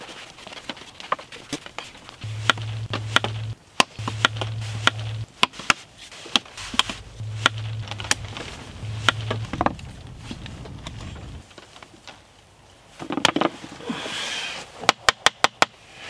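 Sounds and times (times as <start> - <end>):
low steady hum: 2.2 - 5.4, 6.5 - 11.5.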